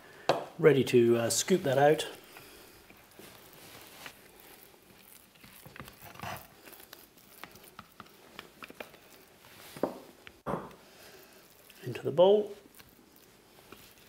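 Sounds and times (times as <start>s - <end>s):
hummus squelching: 11.0s - 14.0s.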